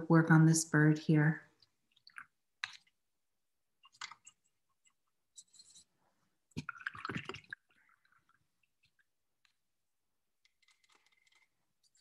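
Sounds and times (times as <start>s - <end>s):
paint box and brush clicking: 3.8s - 5.9s, 10.4s - 12.0s.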